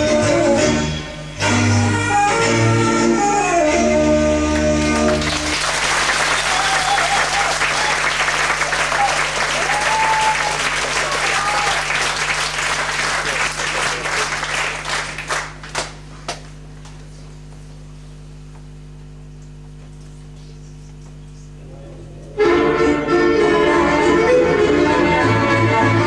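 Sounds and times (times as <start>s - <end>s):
audience applauding: 4.5s - 16.5s.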